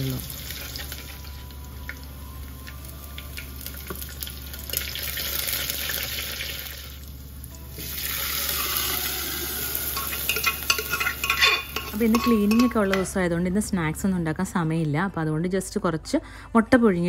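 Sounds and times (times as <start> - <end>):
food sizzling in hot oil: 0.0 - 12.8
metal spoon stirring: 9.9 - 13.1.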